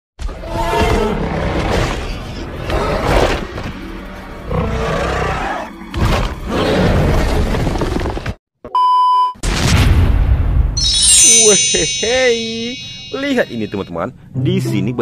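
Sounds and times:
creature roars: 0.3s - 3.5s, 4.5s - 5.7s
booms: 9.4s - 10.8s.

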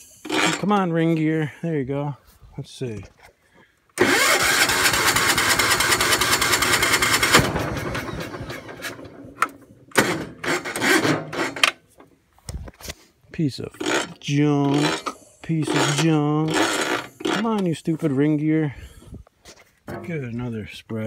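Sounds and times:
electric starter cranking engine: 0.2s - 0.8s, 4.0s - 11.8s, 13.8s - 17.6s.

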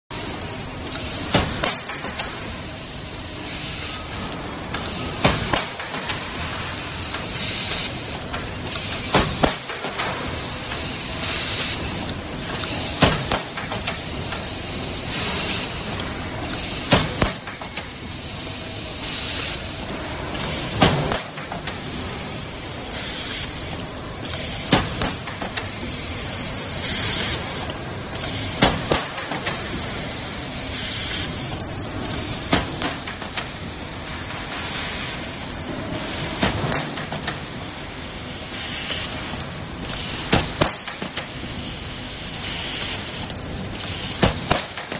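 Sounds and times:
steady hiss: 0.1s - 44.9s
stud welder cracks: 7.0s - 14.4s, 28.2s - 29.8s, 38.7s - 41.5s, 42.4s - 44.9s.

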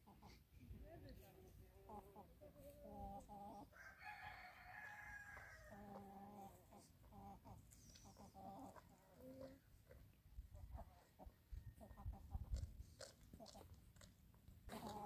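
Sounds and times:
rooster crowing: 3.7s - 5.8s.

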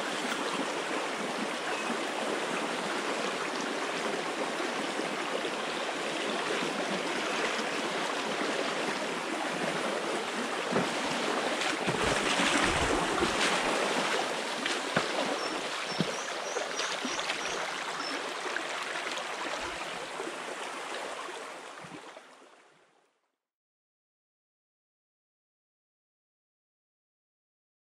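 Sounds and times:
stream rushing over stones: 0.0s - 22.1s
water splashing: 6.5s - 20.5s.

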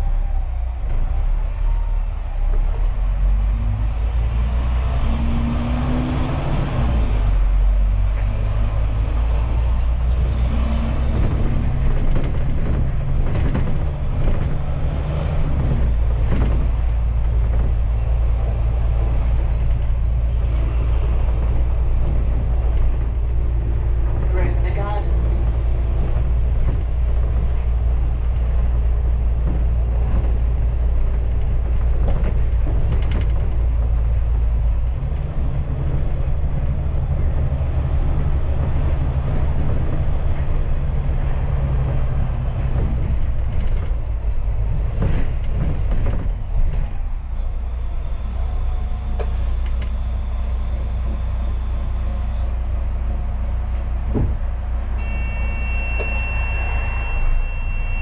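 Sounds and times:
bus engine droning: 0.0s - 58.0s
rumble of the ride: 0.0s - 58.0s
bodywork creaks and rattles: 7.9s - 51.5s
high squeal: 47.0s - 52.4s, 55.0s - 58.0s.

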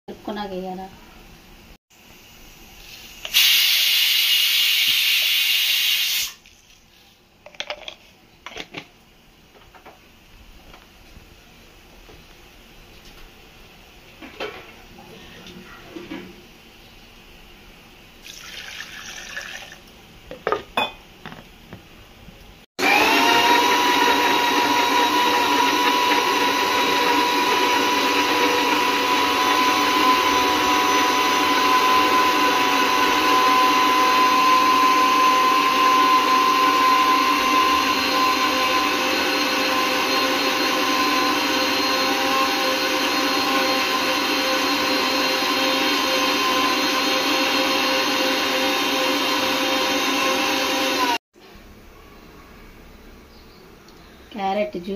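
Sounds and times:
water pouring into jar: 18.2s - 19.8s
mixer grinder whining: 22.8s - 51.2s.

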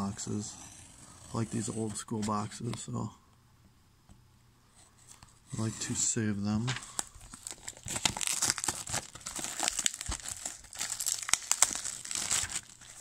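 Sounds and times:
plastic shrink wrap crinkling: 6.8s - 13.0s.

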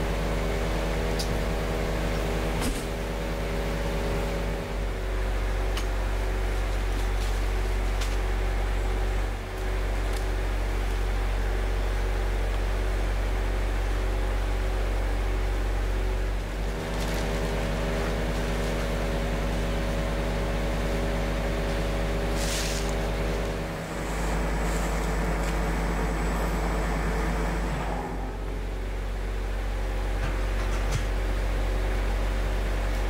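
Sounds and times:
engine idling: 0.0s - 33.0s
short hiss: 22.3s - 23.0s.

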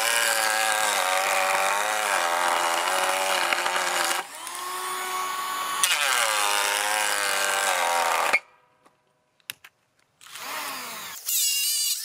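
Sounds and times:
cordless planer cutting wood: 0.0s - 8.4s.

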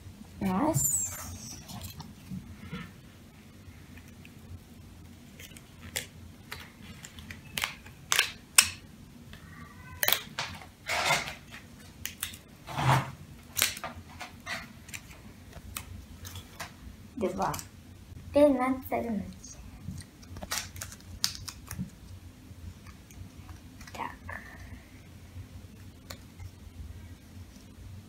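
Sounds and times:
card clicking and snapping: 5.4s - 8.8s, 20.0s - 21.9s.

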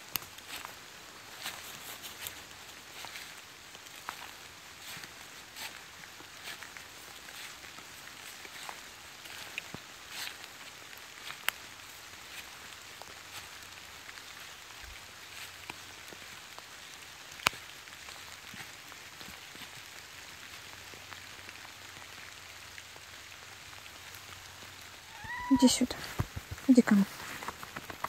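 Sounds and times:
light rain patter on stream: 0.0s - 28.0s.

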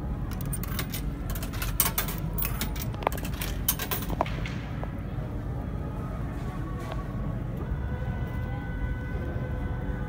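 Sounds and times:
steady low hum: 0.0s - 10.0s
coins clinking into coin slot: 0.3s - 4.4s.

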